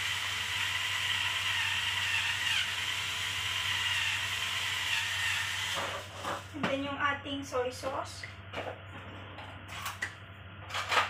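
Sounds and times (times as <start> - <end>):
electric pepper grinder whirring: 0.0 - 6.1.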